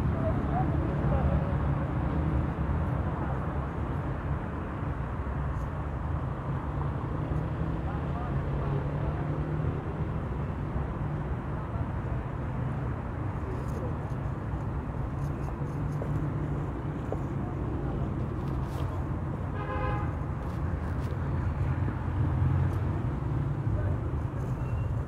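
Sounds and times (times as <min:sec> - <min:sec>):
city traffic rumble: 0:00.0 - 0:25.0
car horn toot: 0:19.6 - 0:20.1.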